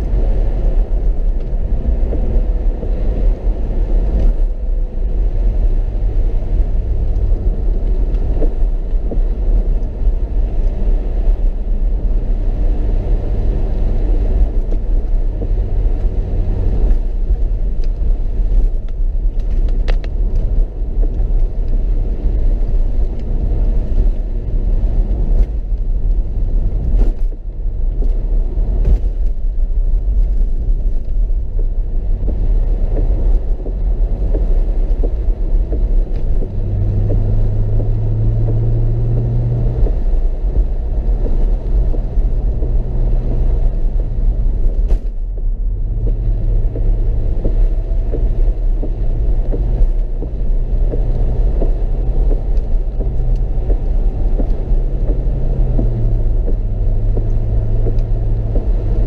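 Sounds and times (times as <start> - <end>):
car engine and tyres rumbling: 0.0 - 59.0.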